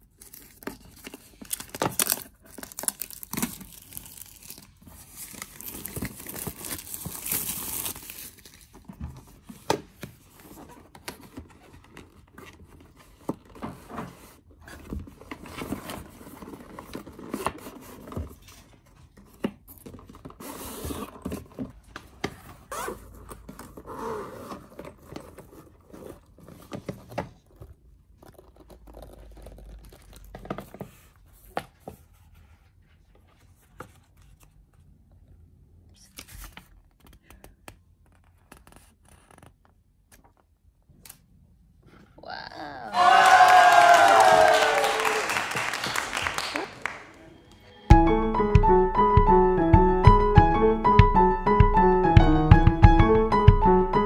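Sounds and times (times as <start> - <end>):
plastic wrap tearing and crinkling: 0.0 - 8.8.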